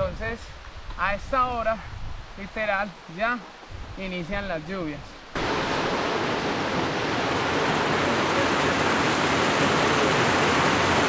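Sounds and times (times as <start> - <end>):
water rushing: 2.4 - 11.0.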